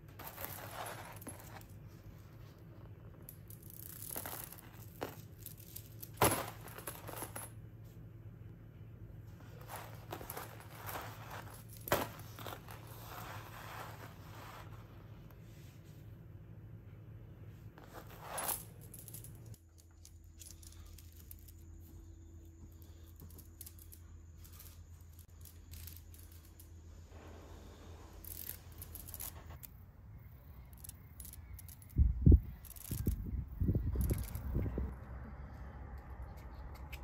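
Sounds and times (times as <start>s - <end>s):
low steady hum: 0.0s - 37.0s
chain links clinking: 0.2s - 1.7s, 3.3s - 7.6s, 9.6s - 13.6s, 17.9s - 26.8s, 28.2s - 29.7s, 30.6s - 33.2s, 33.9s - 34.6s.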